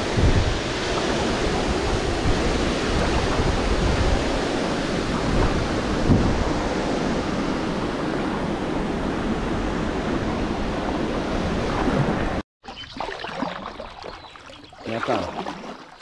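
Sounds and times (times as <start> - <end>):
water splashing: 11.7 - 16.0.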